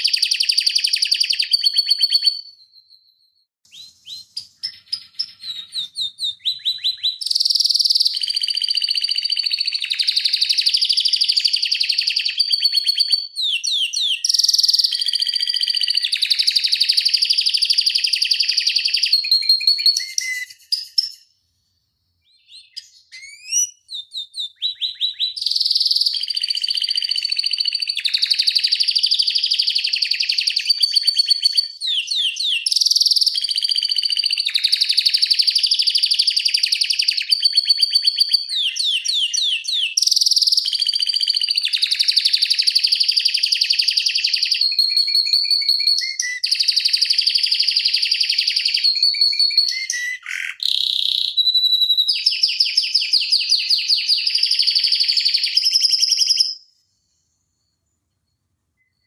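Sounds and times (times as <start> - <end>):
canary singing trills: 0.0 - 21.2, 22.2 - 56.7.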